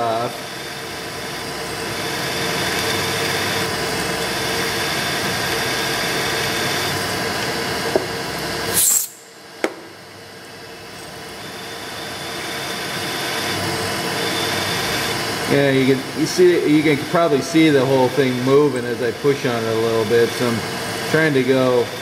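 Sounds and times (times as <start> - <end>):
drill bit cutting into screw: 0.3 - 9.2, 11.4 - 15.5.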